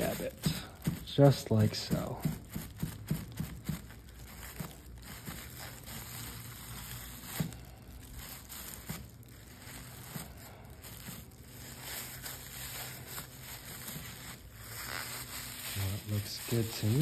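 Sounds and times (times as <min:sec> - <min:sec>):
plastic bag tapping on canvas: 0:00.0 - 0:05.8
plastic bag crinkling: 0:00.0 - 0:17.0.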